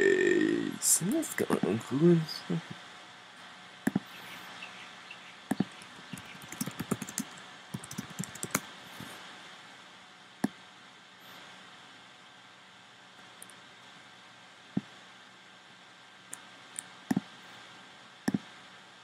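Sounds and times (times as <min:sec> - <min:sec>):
fingers tapping touchscreen: 0:03.9 - 0:04.3, 0:05.5 - 0:08.6.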